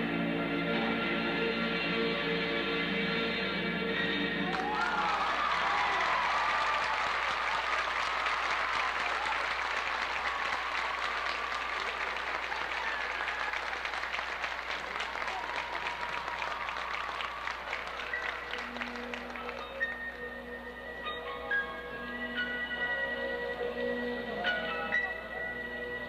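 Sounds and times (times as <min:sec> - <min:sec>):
people shouting and whooping: 0:04.4 - 0:18.7
audience applauding: 0:04.4 - 0:20.3.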